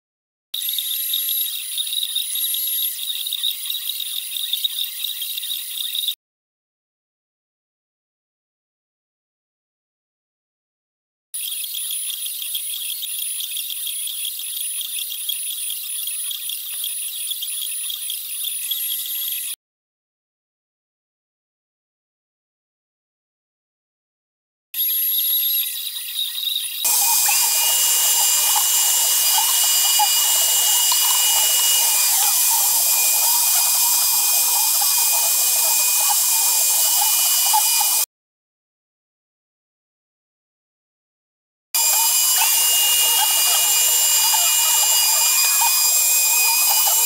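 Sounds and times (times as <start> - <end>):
router spindle high-pitched whine: 0.6 - 6.2, 24.8 - 38.1, 41.8 - 47.0
bit cutting wood: 26.8 - 38.1, 41.8 - 47.0.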